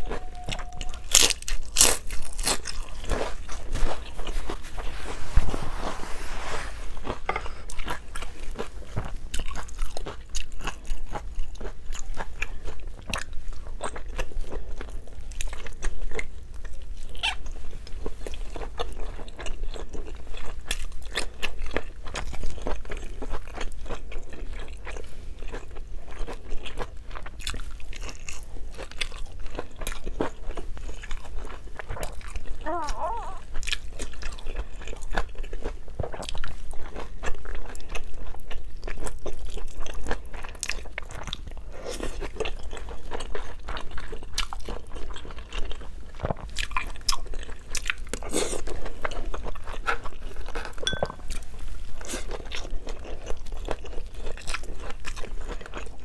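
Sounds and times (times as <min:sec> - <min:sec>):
person humming: 0:00.0 - 0:01.2, 0:32.6 - 0:33.4
wet chewing and lip-smacking: 0:07.0 - 0:56.0.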